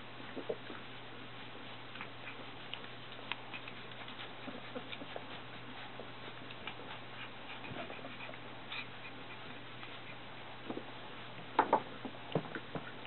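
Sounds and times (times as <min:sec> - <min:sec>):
puppies scratching and shuffling: 0:00.0 - 0:13.0
steady low hum: 0:00.0 - 0:13.0
puppies squeaking: 0:02.0 - 0:10.4.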